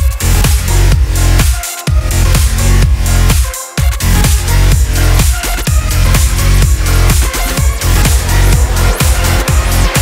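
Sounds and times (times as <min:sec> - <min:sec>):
electronic dance music: 0:00.0 - 0:10.0
heavy sustained bass line: 0:05.8 - 0:10.0.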